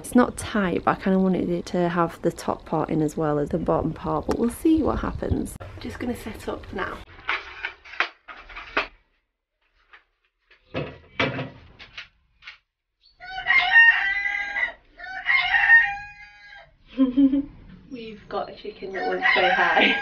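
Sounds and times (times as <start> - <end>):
chicken crowing: 13.2 - 16.8, 19.0 - 20.0.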